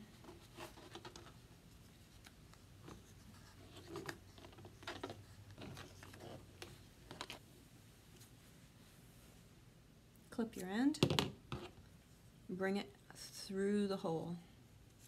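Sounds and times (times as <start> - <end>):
hands handling cardboard: 0.1 - 7.5.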